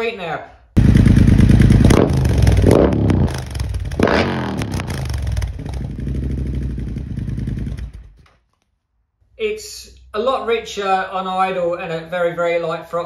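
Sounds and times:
motorcycle engine revving and idling: 0.8 - 8.2.

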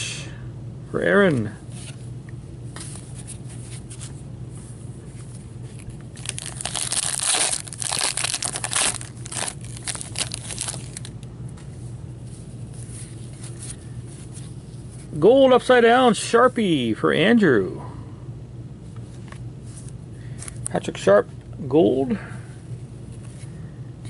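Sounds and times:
foil wrapper tearing and crinkling: 6.2 - 11.1.

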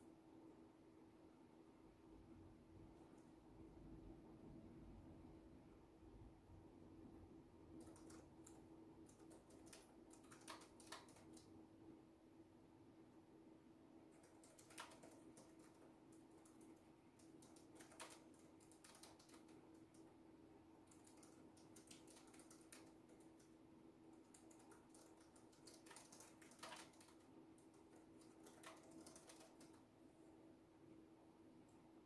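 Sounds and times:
typing on a keyboard: 7.7 - 11.6, 14.1 - 20.2, 20.8 - 29.9.

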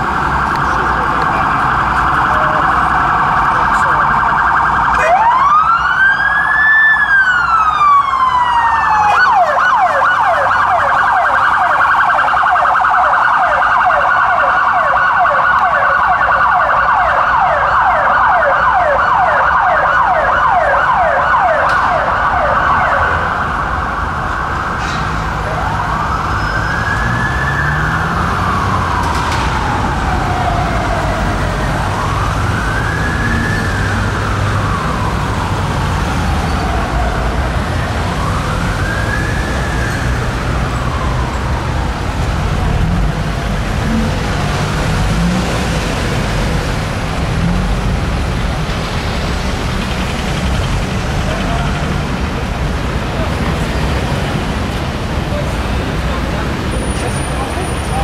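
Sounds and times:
fast-pulsing siren tone: 0.0 - 24.8
police siren wailing and yelping: 0.0 - 58.0.

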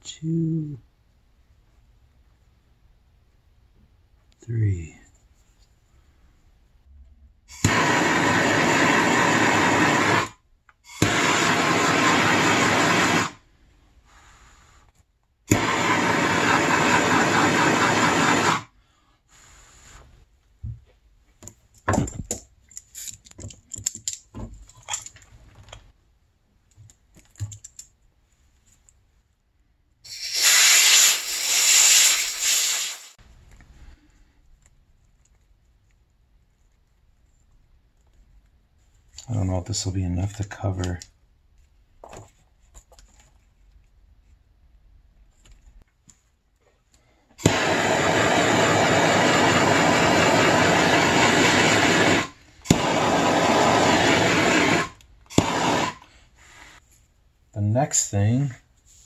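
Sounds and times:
heat gun blowing hot air: 7.5 - 13.4, 15.5 - 18.7, 30.0 - 33.2, 47.4 - 56.1
clicks and rattles of parts: 21.4 - 25.9, 26.6 - 28.0.

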